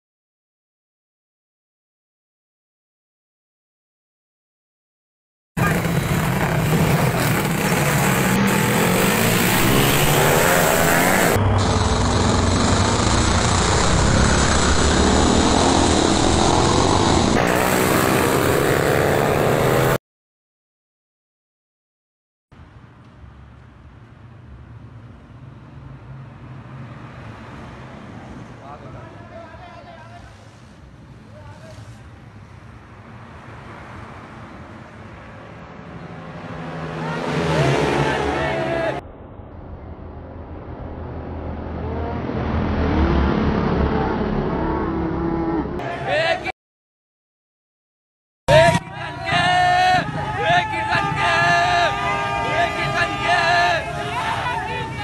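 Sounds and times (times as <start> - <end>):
highway traffic noise: 5.6 - 20.0, 22.6 - 46.5, 48.5 - 55.0
motorcycle engines racing: 5.6 - 20.0, 36.0 - 39.0, 41.6 - 46.2
truck going by: 5.6 - 20.0, 33.0 - 46.3.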